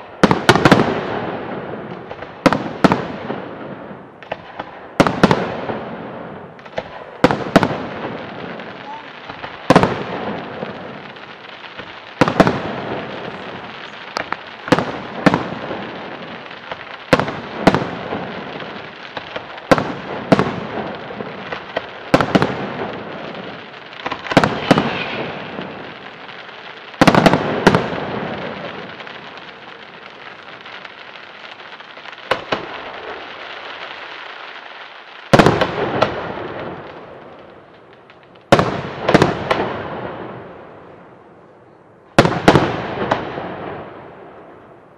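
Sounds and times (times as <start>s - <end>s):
fireworks booming: 0.0s - 41.5s, 42.1s - 44.9s
fireworks hiss: 7.6s - 36.2s.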